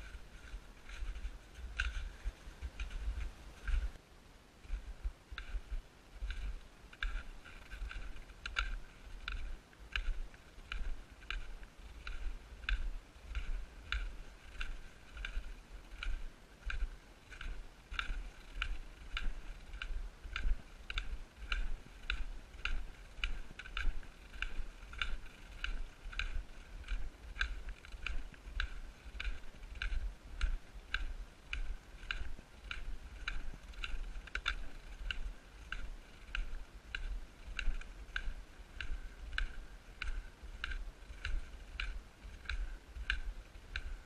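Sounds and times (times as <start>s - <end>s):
footsteps crunching on snow: 0.0s - 4.0s.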